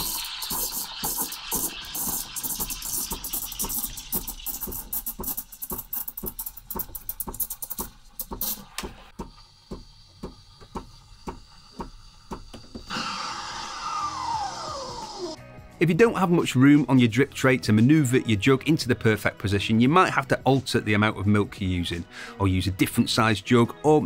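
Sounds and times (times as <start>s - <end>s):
steam wand hissing: 0.0s - 6.4s, 8.4s - 15.4s
milk spluttering bubbles: 0.0s - 7.9s.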